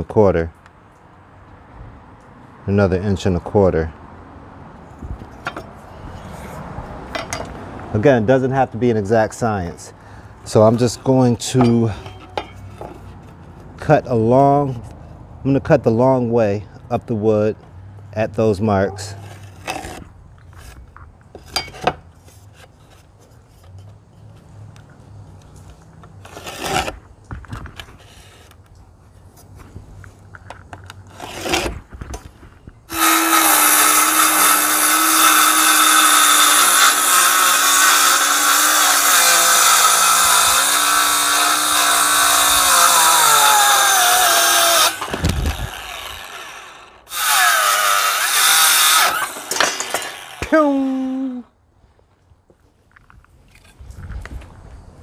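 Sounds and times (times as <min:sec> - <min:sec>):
circular saw cutting wood: 0:10.4 - 0:13.2, 0:26.2 - 0:27.0, 0:32.9 - 0:51.4.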